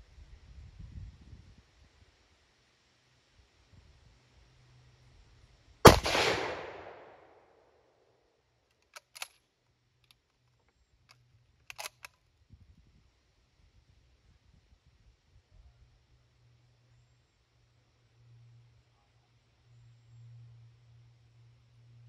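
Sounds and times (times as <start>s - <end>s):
rifle shot with echo: 5.8s - 7.6s
sharp clicks: 8.7s - 9.4s, 11.7s - 12.2s.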